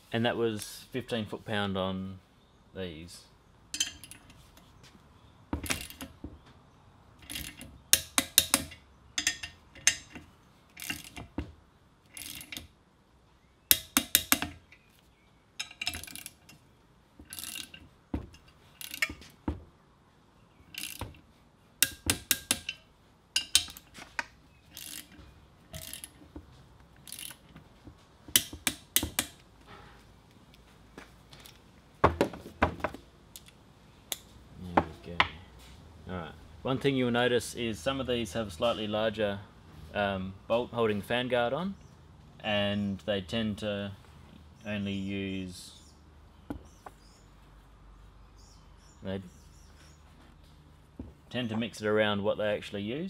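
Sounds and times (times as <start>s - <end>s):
torque wrench ratchet clicking: 12.2s - 12.6s, 17.3s - 17.8s, 20.7s - 21.1s, 24.7s - 25.2s, 25.8s - 26.2s, 27.0s - 27.4s.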